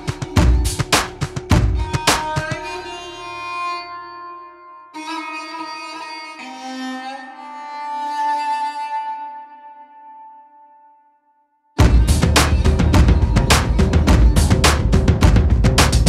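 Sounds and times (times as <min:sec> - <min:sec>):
slow string-like chords: 0:11.8 - 0:16.0.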